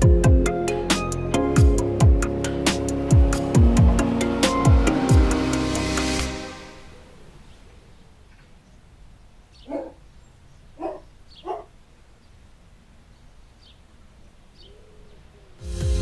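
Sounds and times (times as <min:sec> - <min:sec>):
dog barking: 0:09.6 - 0:10.0, 0:10.8 - 0:11.8.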